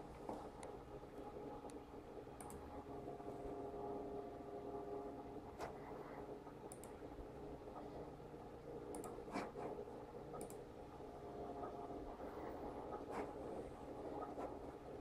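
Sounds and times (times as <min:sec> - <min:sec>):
faint steady hum: 0:00.0 - 0:15.0
keyboard and mouse clicks: 0:02.4 - 0:02.6, 0:06.7 - 0:07.0, 0:08.9 - 0:09.8, 0:10.4 - 0:10.6.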